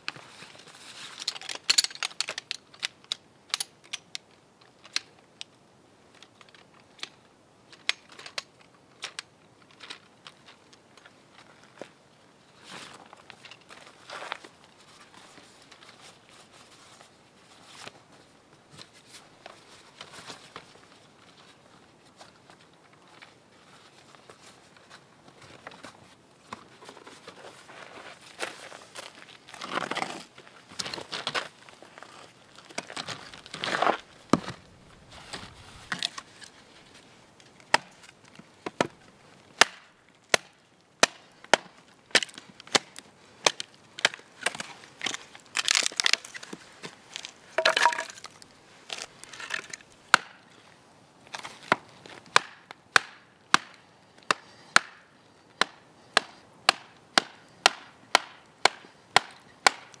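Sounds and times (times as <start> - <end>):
rustling: 12.6 - 39.4
wooden knocks splitting kindling: 39.6 - 50.3.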